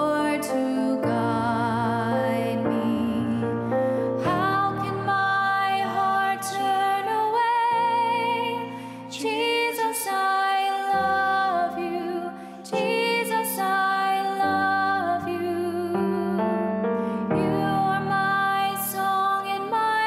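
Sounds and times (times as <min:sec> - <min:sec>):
person singing a hymn: 0:00.0 - 0:20.0.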